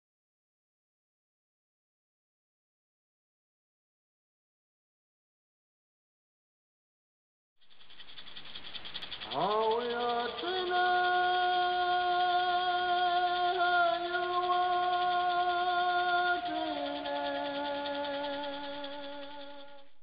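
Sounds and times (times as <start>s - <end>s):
high fast shimmer: 7.6s - 20.0s
sweeping synth tone: 7.8s - 19.9s.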